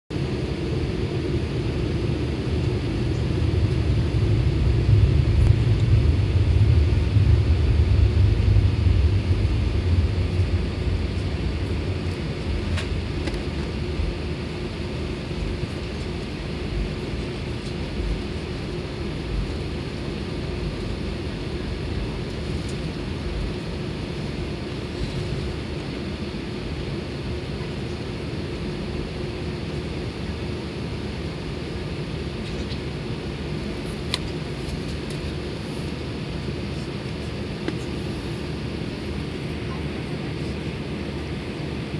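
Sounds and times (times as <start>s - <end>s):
aircraft cabin engine drone: 0.1s - 41.9s
low rumble: 0.2s - 14.2s.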